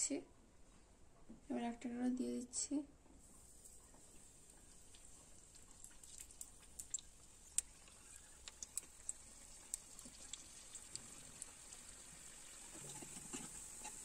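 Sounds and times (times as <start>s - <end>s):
deep-frying sizzle with pops: 3.2s - 14.0s.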